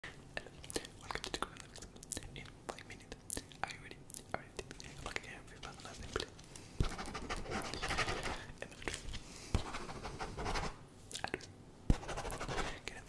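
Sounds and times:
breathy whispering: 0.3 - 9.7, 12.5 - 13.0.

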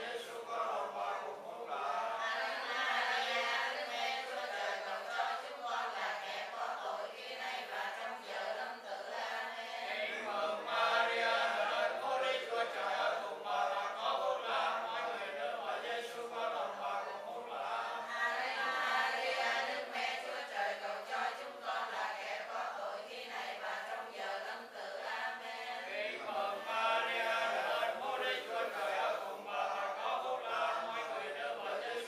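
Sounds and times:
congregation chanting prayers: 0.0 - 32.0.

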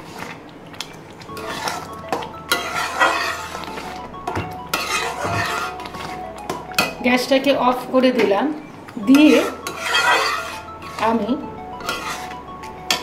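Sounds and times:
background music: 1.1 - 13.0
spatula scraping a pan: 1.3 - 4.0, 4.7 - 6.2, 9.1 - 11.2, 11.8 - 13.0
spatula clinking on pan: 4.3 - 5.8, 9.1 - 10.6.

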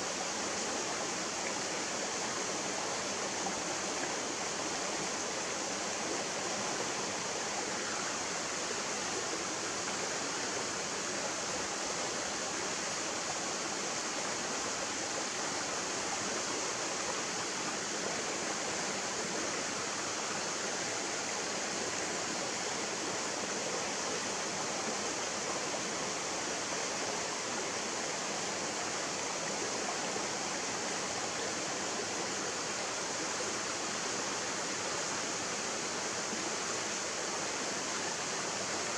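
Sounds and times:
stream running over rocks: 0.0 - 38.9.

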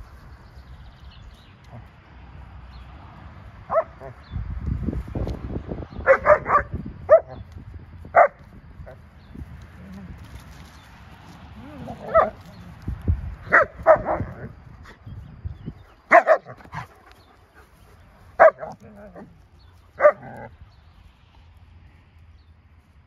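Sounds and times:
dogs barking: 3.6 - 4.2, 6.0 - 7.4, 8.1 - 9.0, 11.6 - 12.6, 13.4 - 14.5, 16.0 - 17.7, 18.3 - 19.3, 19.9 - 20.5.

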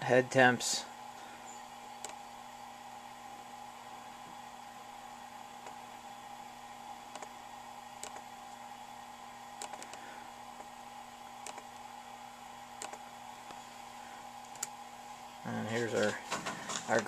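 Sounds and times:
faint steady hum: 0.0 - 17.0
computer mouse clicking: 2.0 - 2.2, 5.6 - 5.8, 7.1 - 7.3, 8.0 - 8.6, 9.6 - 10.0, 11.4 - 11.8, 12.8 - 13.6, 14.4 - 14.8.

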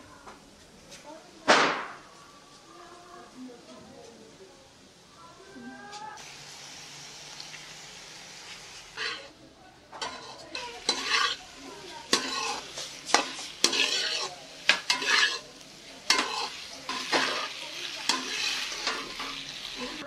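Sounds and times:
food frying: 4.6 - 20.0
metal spoon scraping a wok: 8.9 - 9.3, 10.0 - 20.0
spoon clanking against pan: 9.0 - 9.3, 10.0 - 19.5.

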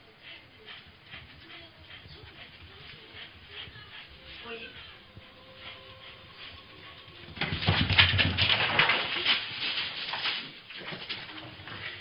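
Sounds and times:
dog scrabbling among shoes on tiles: 6.4 - 12.0.

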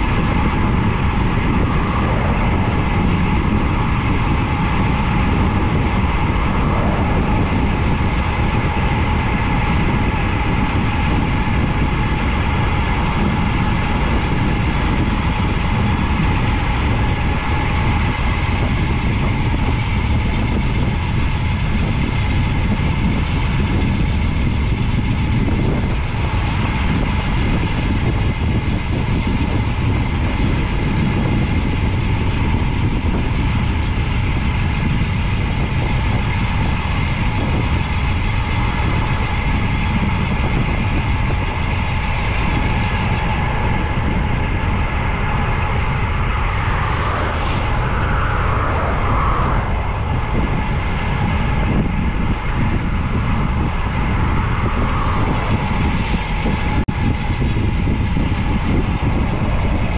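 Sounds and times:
road rumble: 0.0 - 59.9
wind rushing: 0.0 - 59.9.

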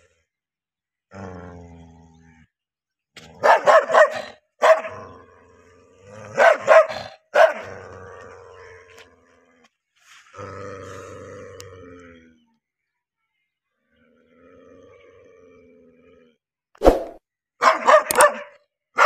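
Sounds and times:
dog growling low: 1.0 - 2.6, 4.9 - 12.6, 13.9 - 16.5
large dog barking deeply: 3.4 - 5.3, 6.1 - 8.1, 17.6 - 19.0.

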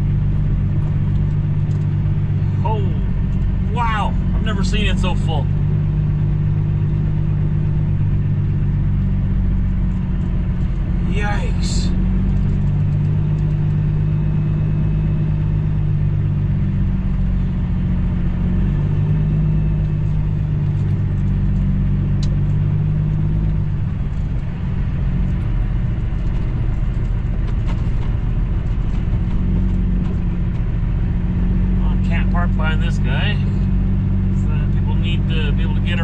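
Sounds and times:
diesel truck engine droning: 0.0 - 36.0.

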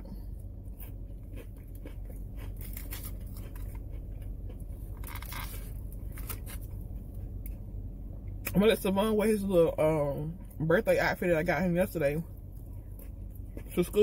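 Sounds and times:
low hum of car cabin: 0.0 - 14.0
chewing a cracker: 0.2 - 7.7.

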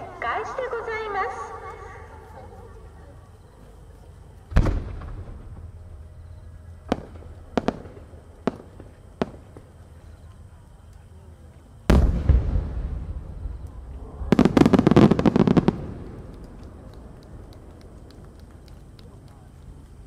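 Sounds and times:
fireworks cracking: 4.4 - 11.1, 11.8 - 20.0
fireworks booming: 4.5 - 10.2, 11.8 - 19.8.

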